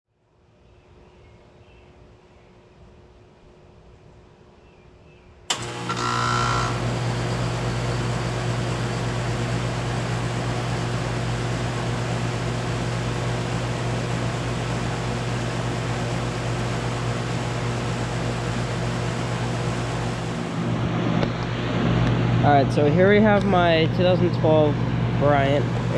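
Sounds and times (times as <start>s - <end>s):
compressor low hum: 0.8s - 25.9s
fan rush of air: 6.6s - 25.9s.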